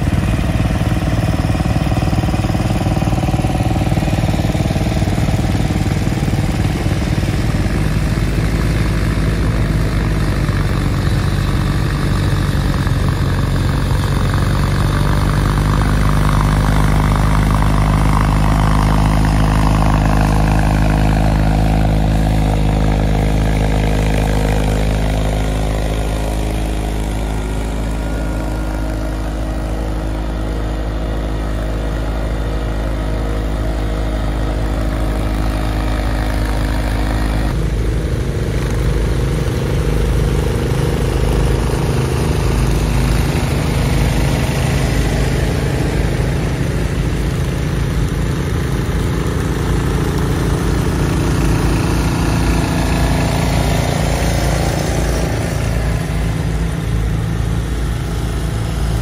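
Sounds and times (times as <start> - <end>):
tractor engine running: 0.0 - 59.0.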